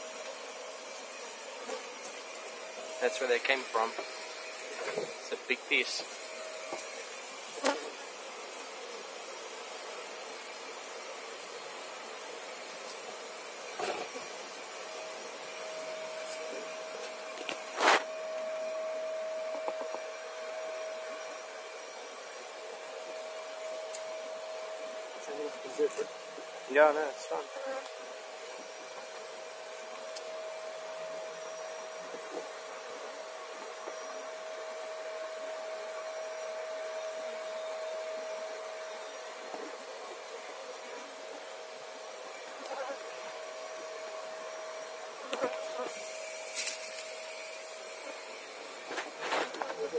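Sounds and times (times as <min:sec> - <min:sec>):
bee vacuum whining: 0:00.0 - 0:49.9
vacuum whine: 0:02.1 - 0:08.0, 0:13.8 - 0:27.5.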